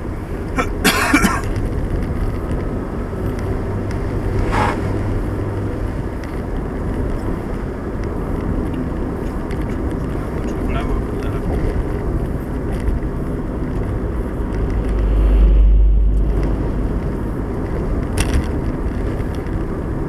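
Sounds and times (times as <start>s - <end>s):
car engine and tyre rumble: 0.0s - 20.0s.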